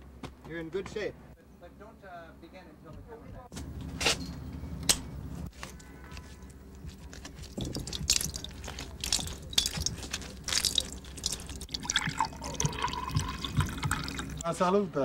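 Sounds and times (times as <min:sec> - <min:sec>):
juice dripping: 0:05.8 - 0:14.5.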